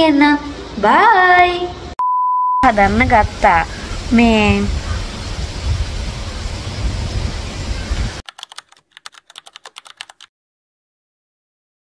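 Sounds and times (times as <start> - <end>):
rapid sharp clicks: 8.2 - 10.3.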